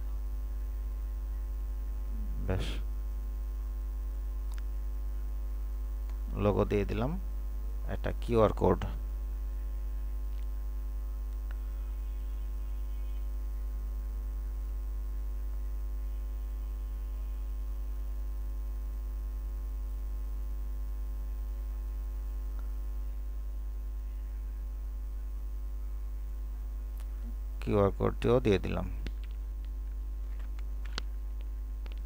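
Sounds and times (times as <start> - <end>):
electrical mains hum: 0.0 - 32.0.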